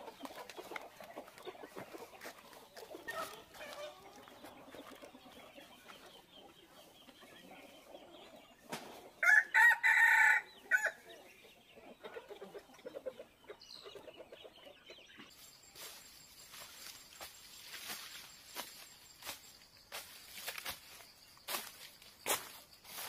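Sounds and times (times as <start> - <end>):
rooster crowing: 9.2 - 11.0.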